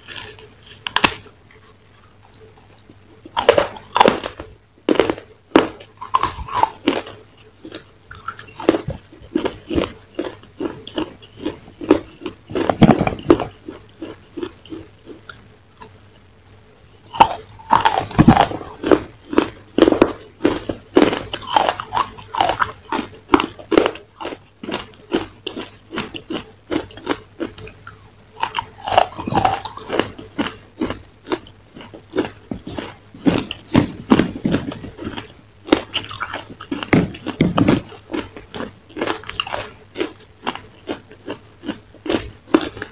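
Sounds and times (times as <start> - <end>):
crisp crunching and chewing: 0.0 - 42.9.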